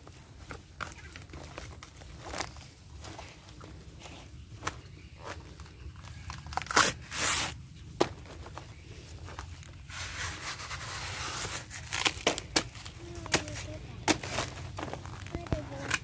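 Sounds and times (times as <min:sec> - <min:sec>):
sharp snaps and cracks: 0:04.6 - 0:07.4
leaf sheaths tearing: 0:05.2 - 0:07.6, 0:09.9 - 0:16.0.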